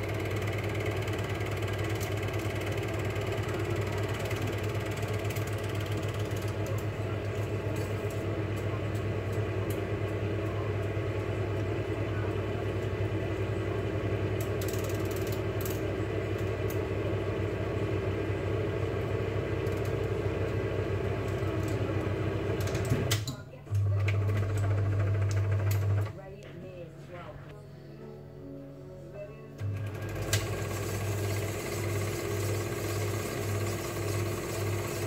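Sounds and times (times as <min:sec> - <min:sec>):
film projector clatter: 0:00.0 - 0:11.8, 0:14.3 - 0:16.8, 0:19.3 - 0:26.1, 0:29.6 - 0:35.0.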